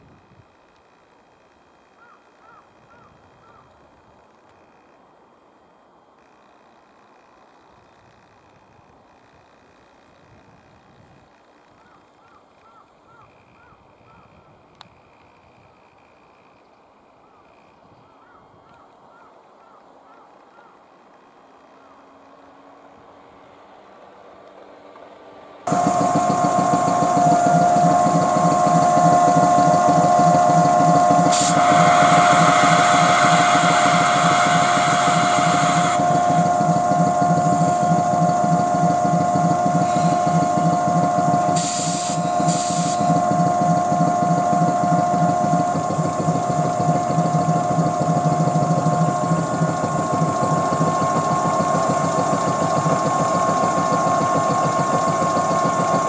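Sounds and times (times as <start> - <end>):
air compressor chugging: 25.7 - 56.0
compressor hissing: 25.7 - 56.0
motor whine: 25.7 - 56.0.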